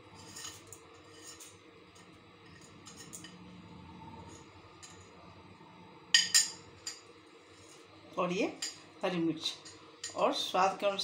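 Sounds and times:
metal fork scraping a bowl: 0:00.1 - 0:03.4.

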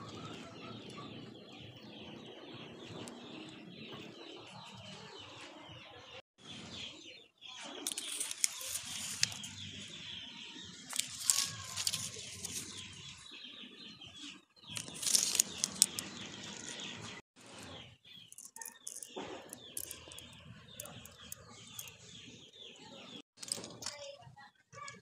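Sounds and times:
small birds chirping: 0:00.0 - 0:25.0
leaves rustling against phone: 0:07.9 - 0:09.6, 0:10.9 - 0:13.1, 0:14.7 - 0:16.8.

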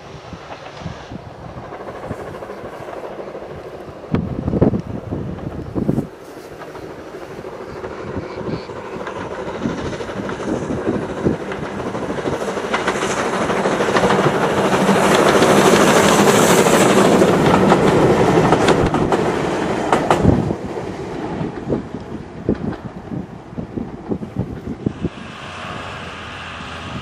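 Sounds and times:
steam locomotive passing: 0:00.0 - 0:27.0
wheels clicking over rail joints: 0:01.6 - 0:20.8.

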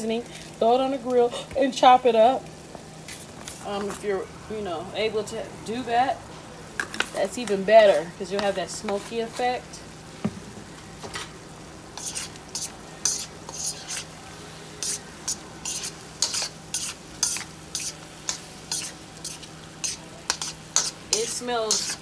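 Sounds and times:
chicken frying in a wok: 0:00.0 - 0:22.0
scraping against a pan: 0:12.0 - 0:14.1, 0:14.8 - 0:22.0.

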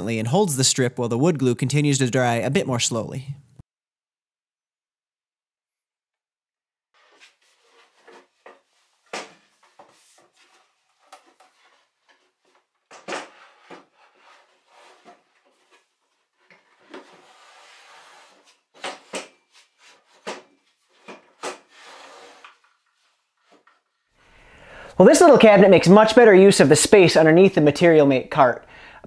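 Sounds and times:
cabinet scraping slide: 0:07.0 - 0:23.9.

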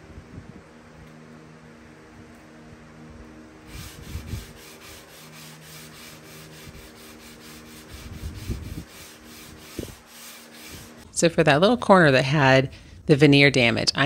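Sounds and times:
steady low hum: 0:00.0 - 0:13.7
sanding wood back and forth: 0:03.6 - 0:11.0.

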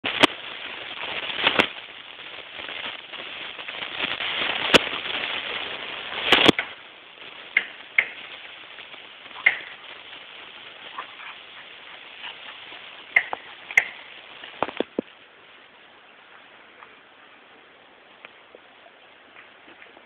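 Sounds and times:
dog rolling in grass: 0:09.3 - 0:14.7.

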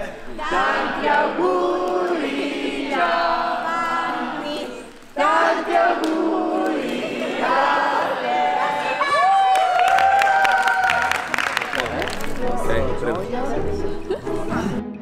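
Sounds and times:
group singing held notes: 0:00.3 - 0:09.1.

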